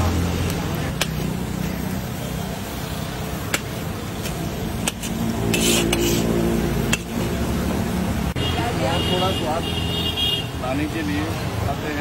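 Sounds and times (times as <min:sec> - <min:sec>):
onions frying in oil: 0:00.0 - 0:08.4
street traffic: 0:00.0 - 0:12.0
metal spatula scraping iron pan: 0:04.9 - 0:06.4.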